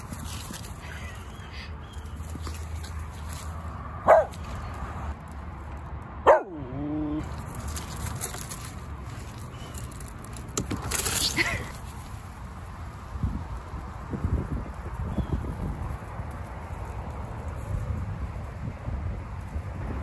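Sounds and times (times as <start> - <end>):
dog barking: 4.0 - 4.4, 6.2 - 6.7.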